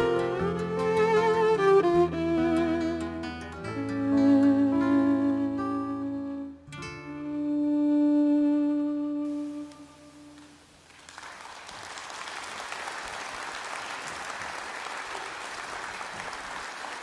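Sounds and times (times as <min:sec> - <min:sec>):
acoustic guitars and violin chord: 0:00.0 - 0:10.6
audience applause: 0:10.4 - 0:17.0.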